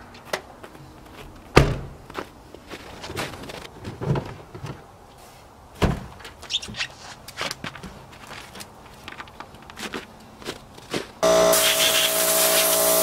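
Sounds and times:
shuffling footsteps: 0.0s - 11.2s.

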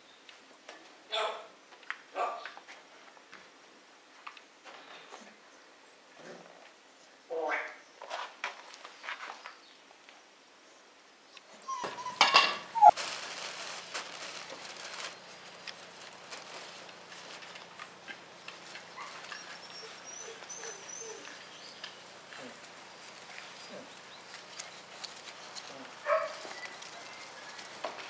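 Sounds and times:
puppy yelp: 11.6s - 13.0s, 18.9s - 21.5s, 26.0s - 27.2s.

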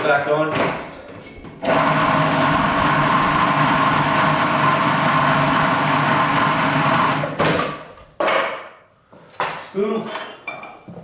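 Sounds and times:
food processor motor running: 1.6s - 7.4s.

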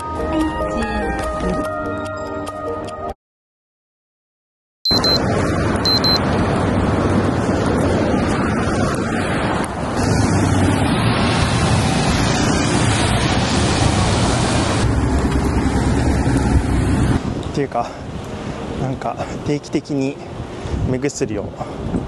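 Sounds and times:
cars passing: 4.9s - 22.0s
bus rumbling past: 5.0s - 19.5s.

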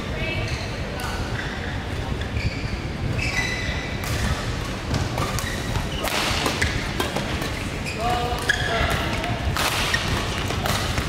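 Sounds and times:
racket hitting shuttlecock: 4.0s - 7.6s, 8.3s - 11.0s.

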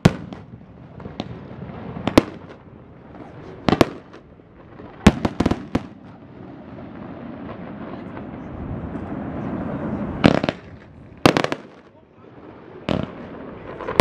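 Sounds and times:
firework shells bursting: 10.2s - 12.0s.

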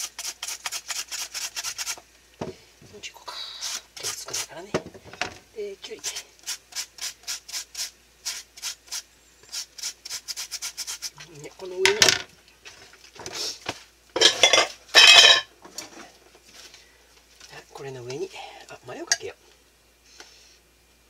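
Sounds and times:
cucumber rasping on slicer: 0.0s - 2.0s, 6.0s - 11.2s.

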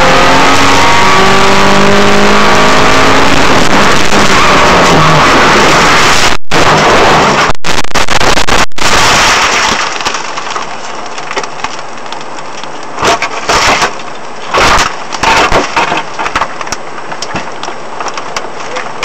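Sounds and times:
glass and bodywork crunches: 7.4s - 18.3s
car body scraping on road: 13.0s - 16.6s.

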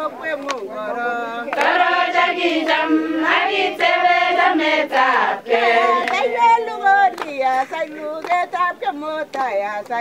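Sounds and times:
choir singing: 0.8s - 7.2s.

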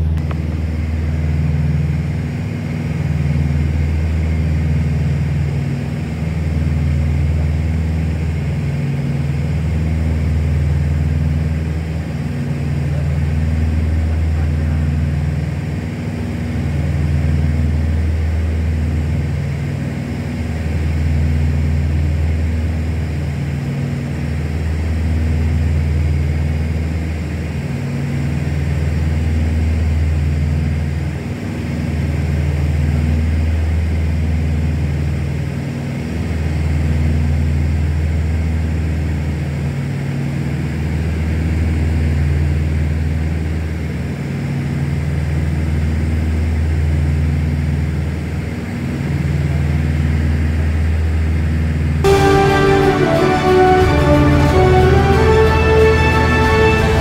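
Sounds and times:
propeller airplane engine droning: 0.0s - 57.0s.

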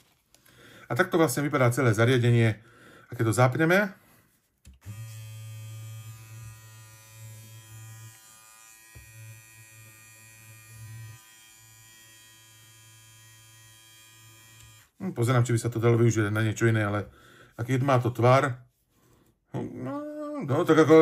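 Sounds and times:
beard trimmer buzzing: 4.8s - 15.0s.

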